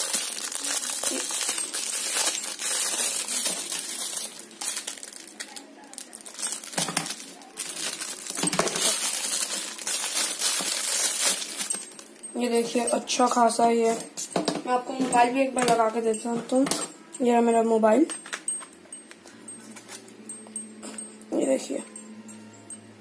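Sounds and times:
plastic bag crinkling: 0:00.0 - 0:14.2
light metallic clinks: 0:11.6 - 0:23.0.

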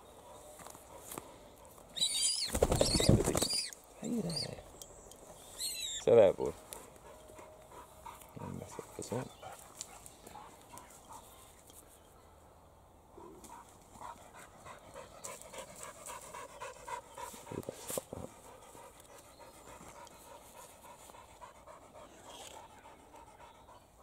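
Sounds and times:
dog panting: 0:06.7 - 0:11.5, 0:13.5 - 0:24.0.

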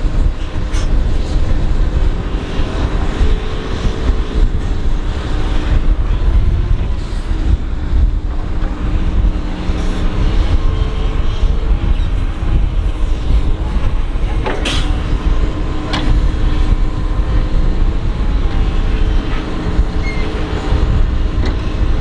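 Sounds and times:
excavator diesel engine under load: 0:00.0 - 0:22.0.

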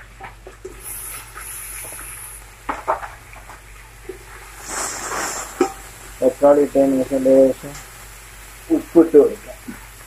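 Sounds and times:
onions sizzling in oil: 0:00.7 - 0:10.0
wooden spatula knocking and scraping pot: 0:05.4 - 0:05.9.

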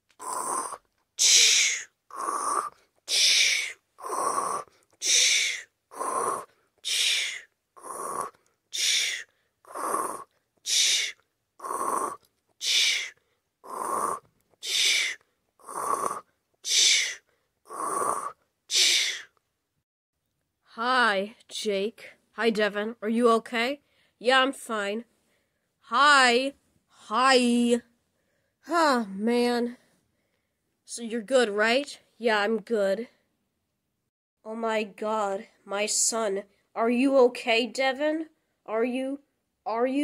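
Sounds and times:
person snoring loudly: 0:00.2 - 0:19.3.

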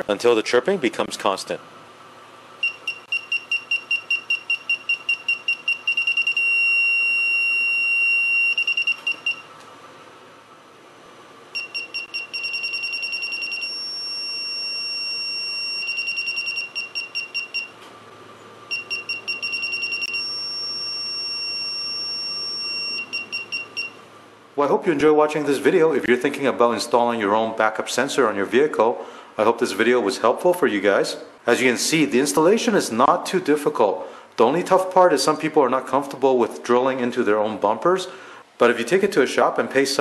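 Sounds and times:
parking sensor beeping: 0:02.6 - 0:09.5, 0:11.5 - 0:17.8, 0:18.7 - 0:24.0.

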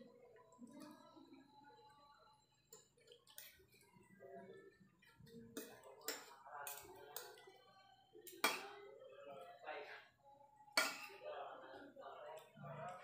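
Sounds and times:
cutlery clinking on a ceramic plate: 0:08.3 - 0:08.8, 0:10.8 - 0:11.2.

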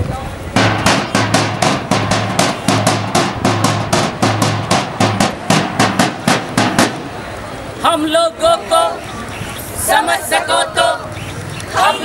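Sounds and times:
drum beaten in fast rhythm: 0:00.6 - 0:07.1.

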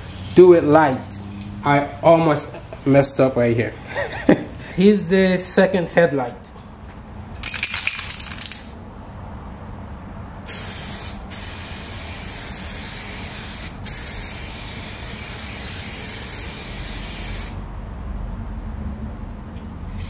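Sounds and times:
aerosol can spraying hiss: 0:10.5 - 0:17.6.

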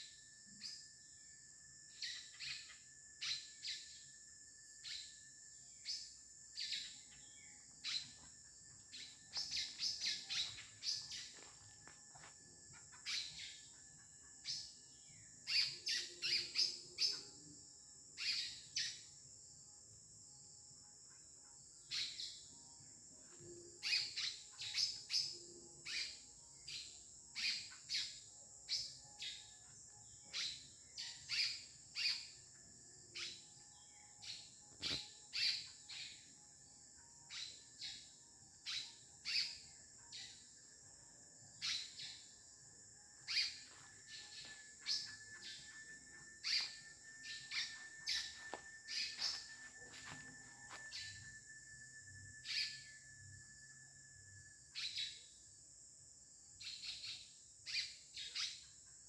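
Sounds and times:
high-pitched insect drone: 0:00.0 - 0:59.0
small birds chirping: 0:05.8 - 0:13.8, 0:14.4 - 0:17.4, 0:23.8 - 0:32.5, 0:33.1 - 0:36.3, 0:37.3 - 0:40.5, 0:41.6 - 0:42.5, 0:43.2 - 0:50.2, 0:56.6 - 0:58.8.

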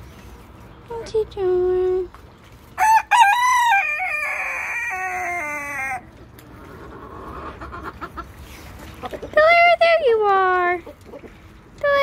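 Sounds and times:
rooster crowing: 0:02.8 - 0:06.1
chickens clucking: 0:04.1 - 0:11.7.

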